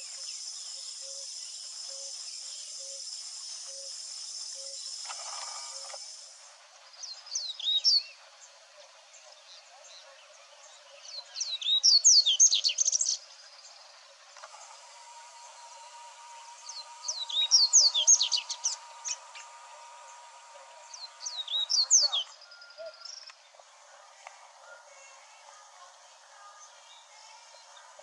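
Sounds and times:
songbird twittering: 0.0s - 8.5s, 9.1s - 14.0s, 15.3s - 23.6s.

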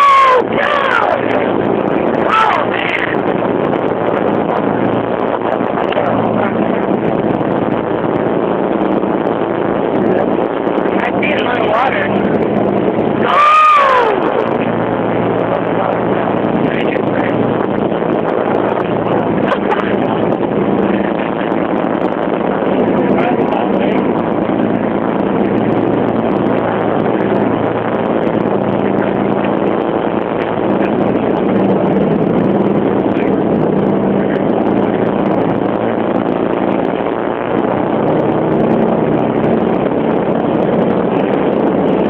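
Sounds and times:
motorboat engine hum: 0.0s - 42.0s
water rushing along hull: 0.0s - 42.0s.

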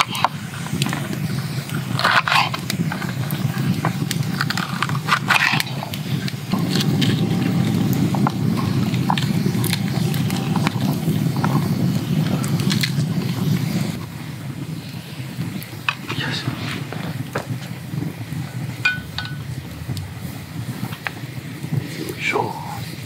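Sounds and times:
low rushing noise: 16.4s - 23.0s.

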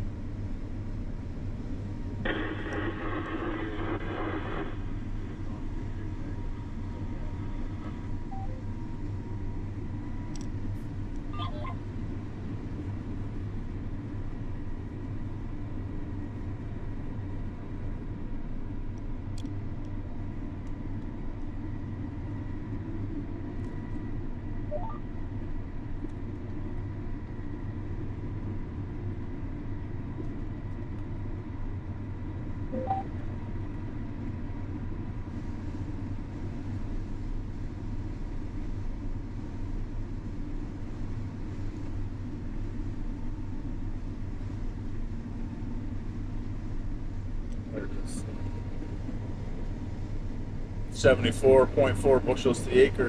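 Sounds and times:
faint constant whine: 0.0s - 53.0s
combine harvester engine rumbling: 2.0s - 8.6s.

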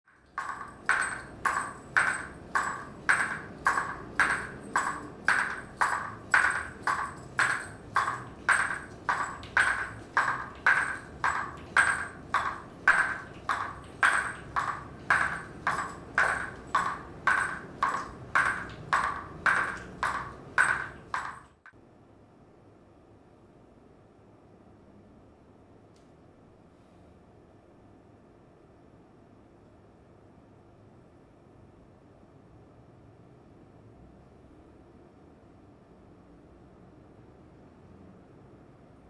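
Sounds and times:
metal percussion ringing strikes: 0.1s - 21.6s.

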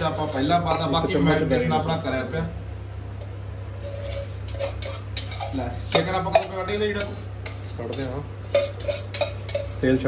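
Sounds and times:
spoon stirring and scraping a pot: 3.8s - 9.8s.

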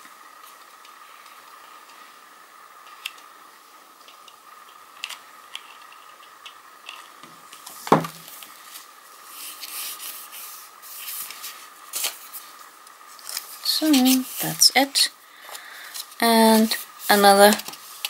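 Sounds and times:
faint steady whine: 0.0s - 18.0s
paper rubbing and rustling: 8.6s - 14.7s, 15.9s - 18.0s.

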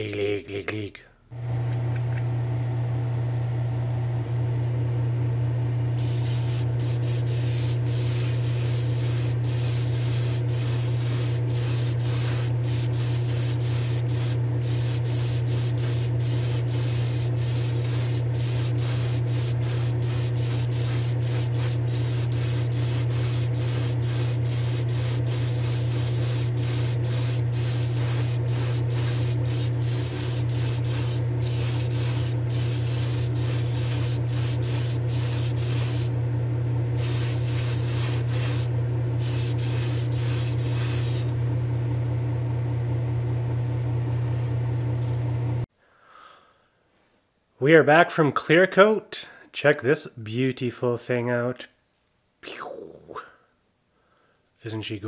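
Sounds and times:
steady low hum: 0.0s - 45.7s
airbrush spraying hiss: 6.0s - 36.1s, 37.0s - 41.3s.

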